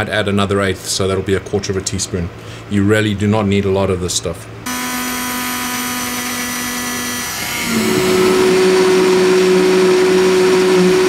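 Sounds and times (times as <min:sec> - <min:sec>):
hand blender motor hum: 0:04.7 - 0:11.0.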